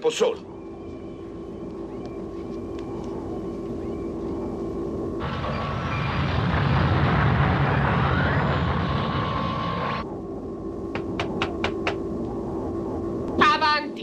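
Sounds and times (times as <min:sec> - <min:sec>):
steady electronic hum: 0:00.0 - 0:14.0
rushing spaceship engine: 0:05.2 - 0:10.1.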